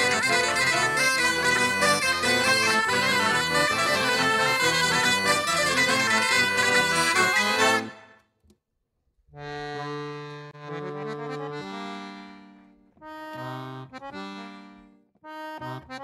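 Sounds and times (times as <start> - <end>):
folk dance tune on bagpipes: 0.0 - 8.0.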